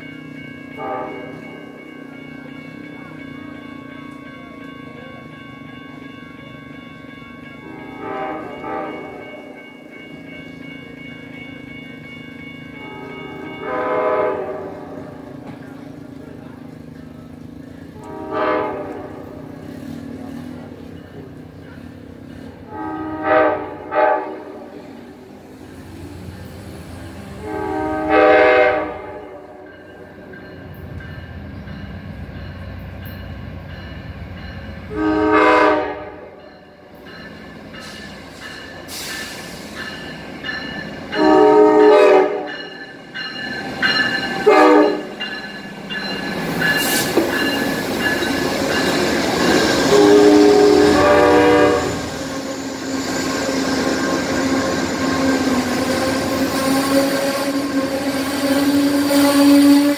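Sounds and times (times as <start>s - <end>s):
train rumble and wheel noise: 0.0s - 59.9s
train horn blasts: 0.8s - 1.6s, 7.6s - 9.6s, 12.8s - 15.3s, 17.9s - 19.5s, 22.6s - 24.8s, 27.1s - 29.8s, 34.9s - 36.4s, 41.1s - 42.6s, 44.4s - 45.1s, 49.6s - 52.6s, 55.9s - 59.9s.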